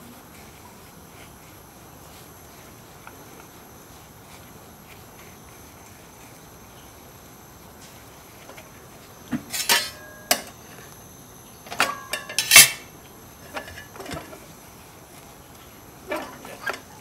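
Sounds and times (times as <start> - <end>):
faint steady hiss: 0.0 - 17.0
metal utensils clinking: 9.4 - 10.6, 11.7 - 12.9, 13.5 - 14.4, 16.1 - 17.0.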